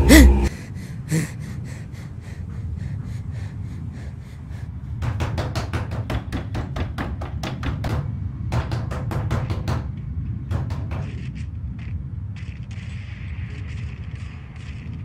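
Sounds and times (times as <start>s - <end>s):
steady low drone: 0.0s - 4.9s.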